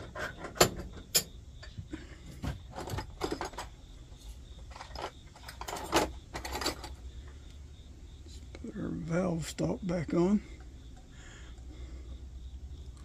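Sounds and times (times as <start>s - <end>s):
small metal parts clinking: 2.4s - 7.0s.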